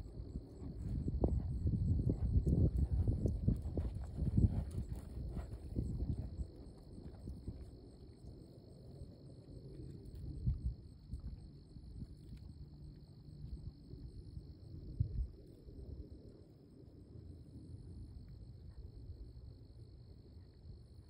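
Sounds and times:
low outdoor rumble: 0.0s - 16.4s
crickets chirping: 0.0s - 21.0s.

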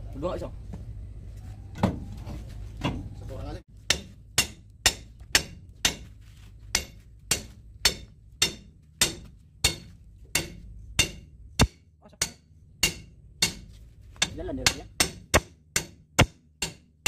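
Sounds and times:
hammer striking steel spanner: 3.9s - 6.1s, 6.7s - 16.9s.

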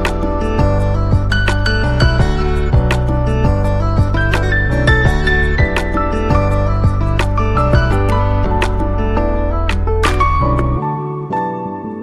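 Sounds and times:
instrumental music: 0.0s - 12.0s.

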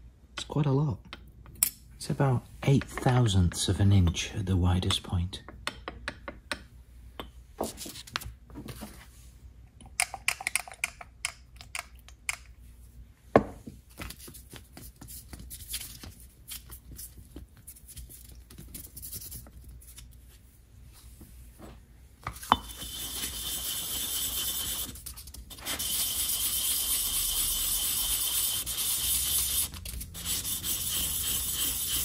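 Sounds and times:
sandpaper rustling and scraping: 23.0s - 32.0s.

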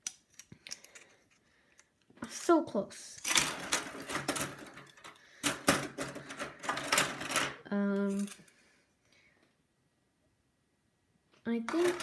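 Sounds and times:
ram sticks clicking and clattering: 3.2s - 8.6s.

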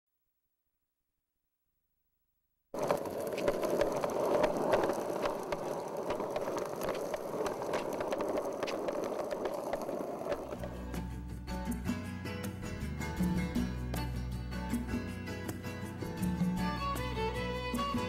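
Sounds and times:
skateboard wheels rolling on pavement: 2.8s - 12.0s.

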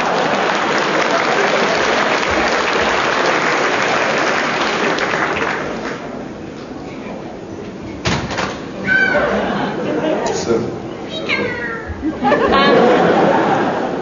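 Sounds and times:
crowd applause: 0.0s - 6.2s, 12.2s - 14.0s
crowd murmur: 8.6s - 14.0s.

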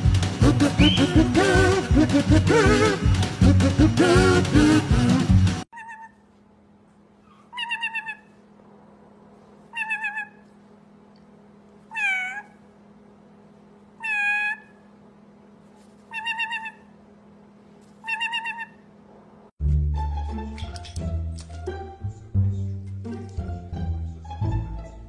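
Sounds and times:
parrot meow calls: 5.8s - 6.2s, 9.7s - 10.4s, 11.9s - 12.6s, 14.0s - 14.8s, 16.1s - 16.9s, 18.0s - 18.9s.

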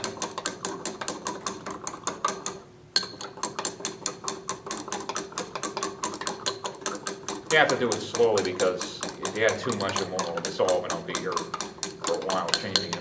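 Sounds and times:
stirring rod clinking on glass: 3.0s - 3.8s, 5.0s - 13.0s.

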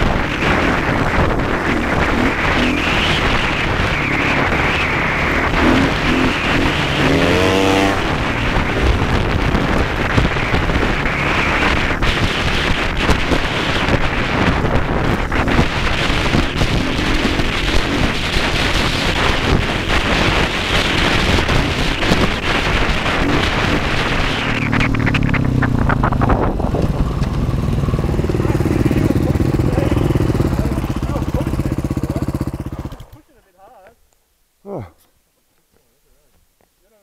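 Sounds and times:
dirt bike engine revving: 0.0s - 33.2s.

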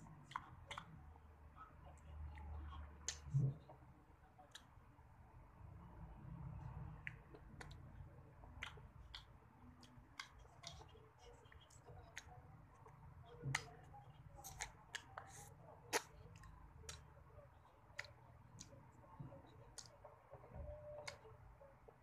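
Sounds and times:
wet mouth clicks and smacks: 0.3s - 0.9s, 2.3s - 3.6s, 8.6s - 13.8s, 14.4s - 17.1s.

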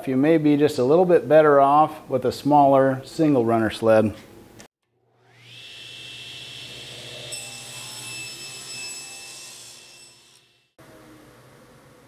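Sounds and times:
table saw blade whining: 5.0s - 11.2s
saw cutting hardwood board: 5.2s - 10.5s.

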